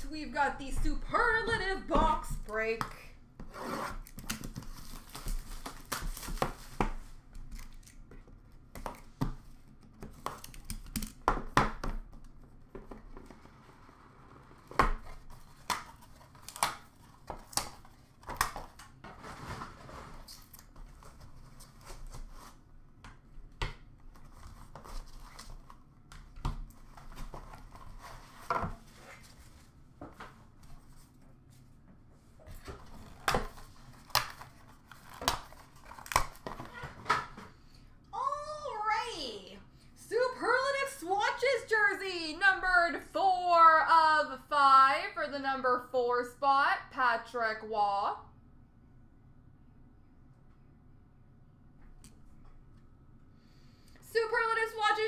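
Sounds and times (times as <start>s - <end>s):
wrapping crinkling and tearing: 4.1s - 8.1s, 32.9s - 36.8s.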